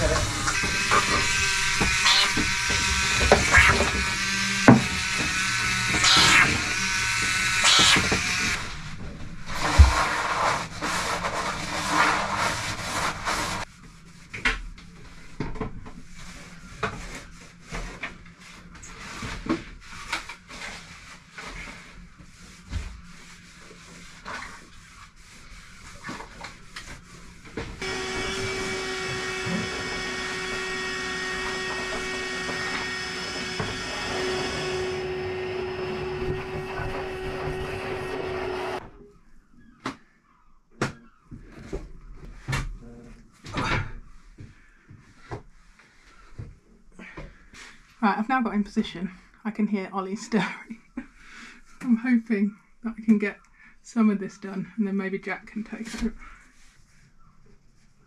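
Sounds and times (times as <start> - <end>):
loud noise: 0.0 - 8.7
wet-and-dry vacuum whining hum: 0.0 - 10.3, 27.6 - 39.0
rubbing and knocking: 0.0 - 14.4.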